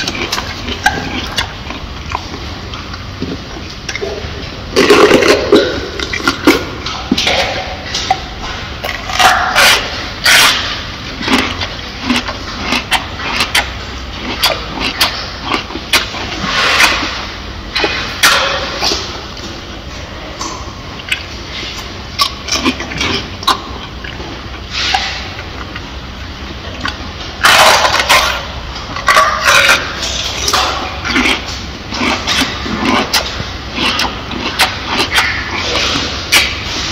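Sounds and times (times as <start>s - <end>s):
mouth smacks: 0.0s - 26.0s, 26.8s - 36.9s
wet crunching of pepper: 0.0s - 36.9s.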